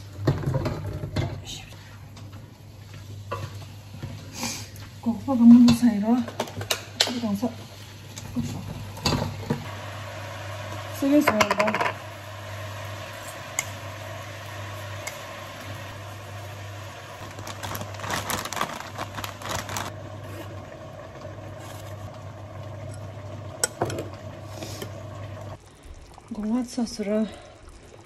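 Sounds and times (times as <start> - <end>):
kitchen appliance humming: 0.0 - 25.6
powder poured from plastic packet: 17.2 - 19.9.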